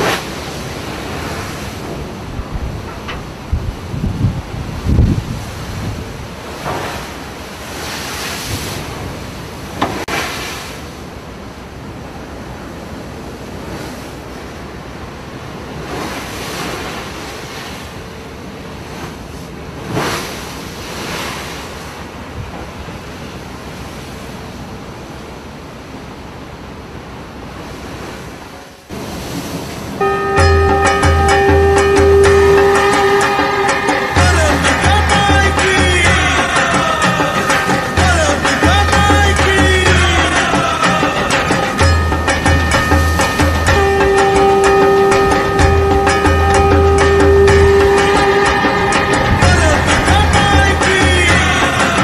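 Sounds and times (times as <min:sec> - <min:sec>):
wind buffeting microphone: 0:00.0 - 0:10.1
river water lapping: 0:00.0 - 0:52.0.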